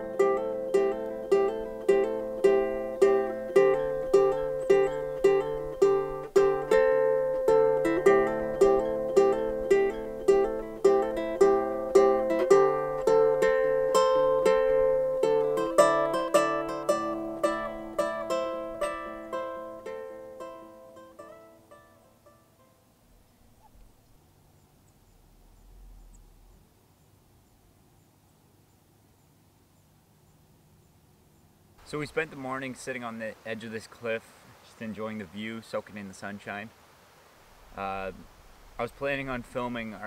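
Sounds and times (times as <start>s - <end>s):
plucked strings music: 0.0s - 24.2s.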